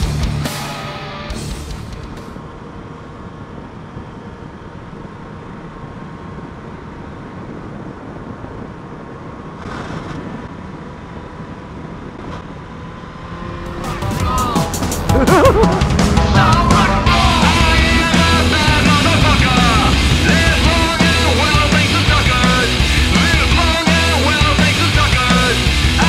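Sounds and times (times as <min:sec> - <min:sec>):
motorcycle engine: 0:11.5 - 0:26.0
wind rush: 0:13.6 - 0:23.6.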